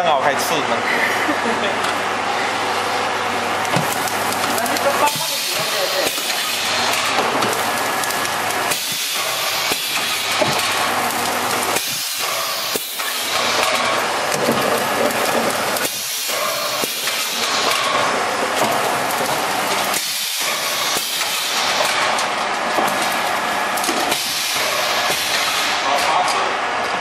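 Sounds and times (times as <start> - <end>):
packaging machine air hiss: 3.8 - 22.2, 24.0 - 26.0.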